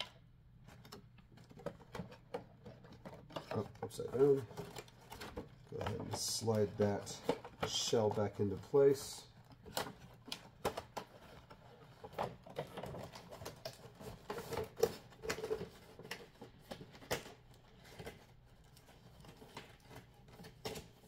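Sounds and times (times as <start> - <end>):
cardboard and plastic scraping: 0.6 - 21.0.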